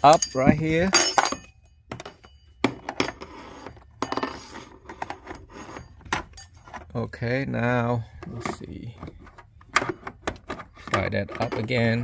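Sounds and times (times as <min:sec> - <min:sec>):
scraping and rubbing: 0:03.0 - 0:06.9.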